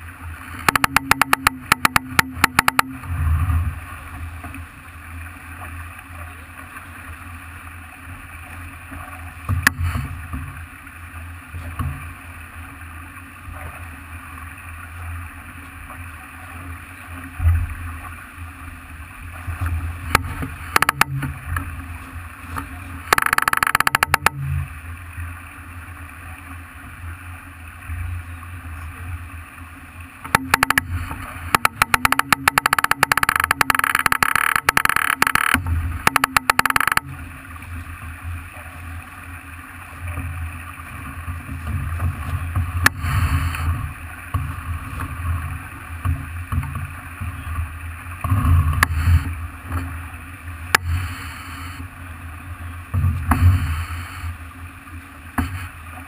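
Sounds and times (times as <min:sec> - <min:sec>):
rush of wind and water: 0:00.0 - 0:56.0
rapid clicking: 0:00.6 - 0:03.0, 0:20.1 - 0:21.3, 0:23.1 - 0:24.4, 0:30.3 - 0:37.1.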